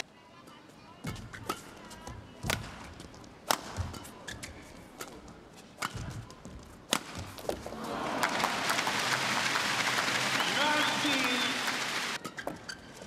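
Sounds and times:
rackets striking shuttlecock: 3.4 - 6.2, 6.9 - 7.6.

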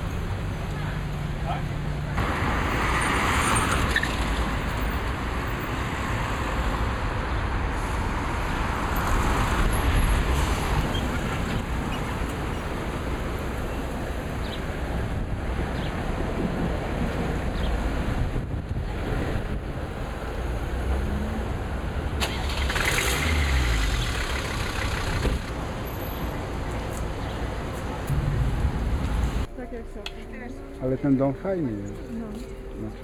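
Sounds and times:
road traffic: 0.0 - 33.0.

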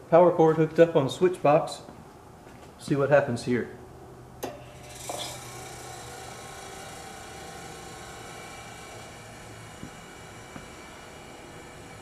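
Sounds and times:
refrigerator compressor humming: 3.8 - 12.0.

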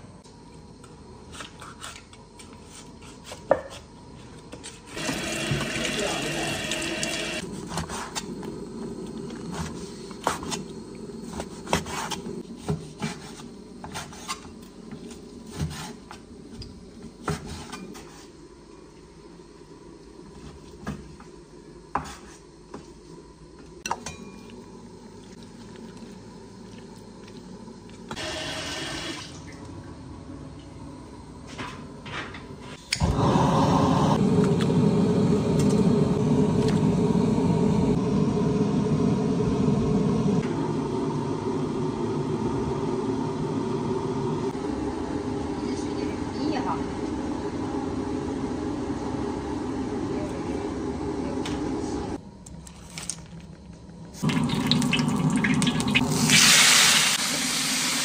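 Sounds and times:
tap running in a sink: 5.0 - 7.4, 54.2 - 58.0.

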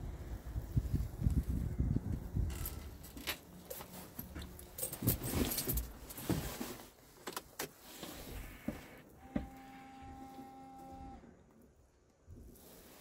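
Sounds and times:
rustling with clicks and knocks: 2.2 - 9.6.

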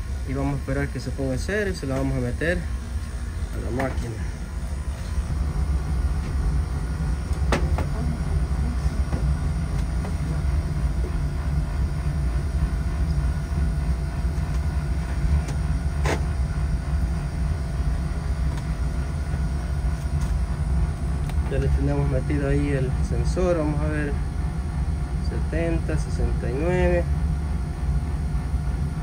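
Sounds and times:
boiler burner rumbling: 0.0 - 29.0.

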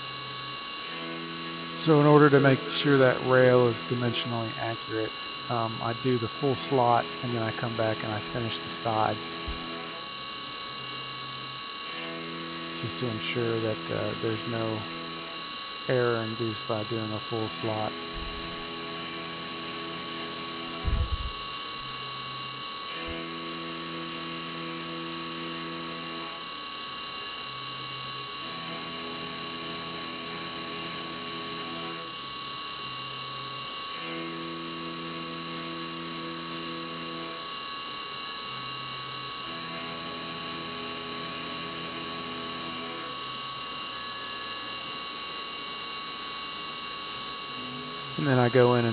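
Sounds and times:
spindle whine: 1.8 - 10.1, 15.9 - 19.2, 20.7 - 21.5
short thump: 20.8 - 21.4.

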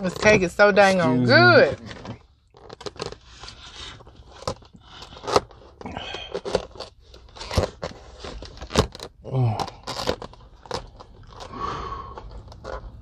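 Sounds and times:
plastic fork scraping styrofoam box: 1.6 - 9.1
plastic lid crinkling and clicking: 1.7 - 3.2, 4.3 - 11.5.

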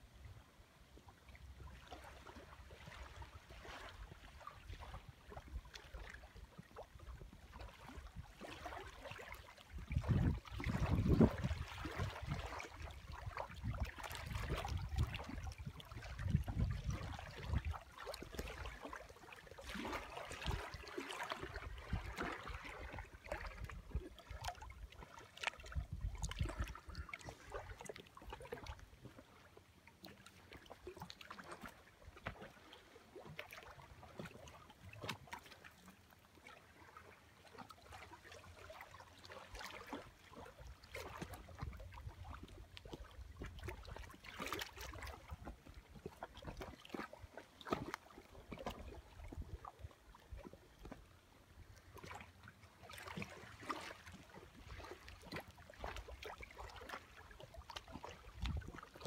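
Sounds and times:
small waves lapping on shore: 0.0 - 59.0
wind rumble on microphone: 9.7 - 18.5, 21.4 - 24.5, 25.6 - 27.6, 48.7 - 51.0, 58.2 - 59.0.

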